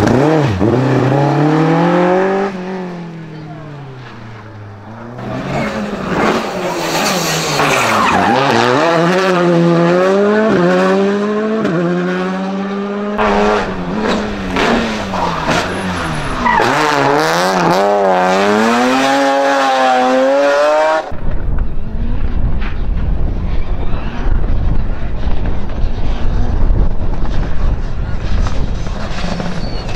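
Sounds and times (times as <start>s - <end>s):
rally car engines revving: 0.0s - 29.9s
wind buffeting microphone: 21.1s - 29.9s.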